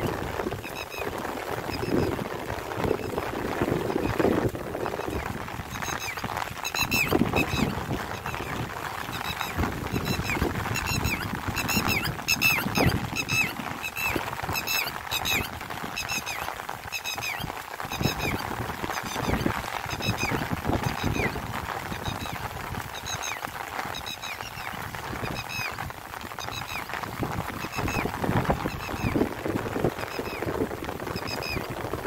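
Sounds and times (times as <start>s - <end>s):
rain hissing: 0.0s - 32.0s
high squeaky chirps: 5.0s - 8.5s.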